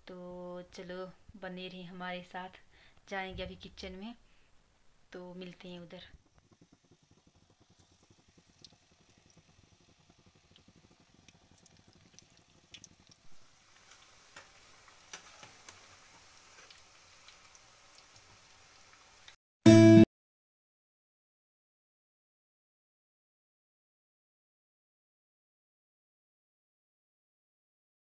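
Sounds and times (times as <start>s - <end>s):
fritters sizzling in oil: 5.2s - 19.4s.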